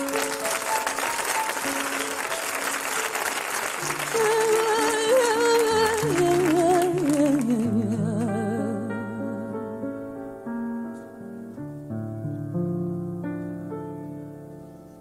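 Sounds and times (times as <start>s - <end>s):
studio audience applauding: 0.0s - 7.6s
piano-like notes: 0.0s - 15.0s.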